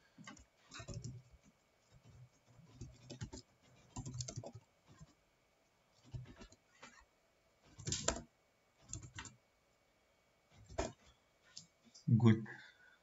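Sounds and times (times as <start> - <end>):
faint computer keyboard typing: 0.1 - 5.2, 7.7 - 9.4.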